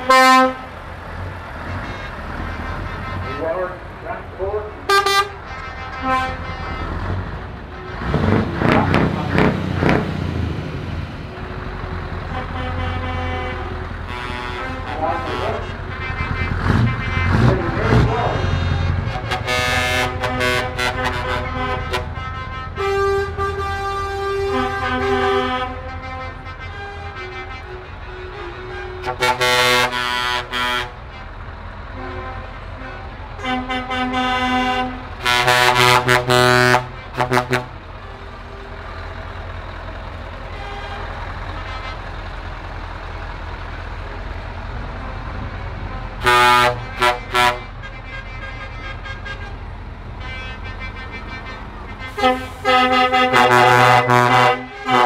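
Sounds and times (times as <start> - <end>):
truck air horn blasts: 0.0 - 0.8, 1.6 - 3.8, 4.8 - 7.1, 12.2 - 31.4, 32.0 - 38.8, 40.5 - 42.1, 45.0 - 55.0
diesel trucks rumbling past: 0.0 - 55.0.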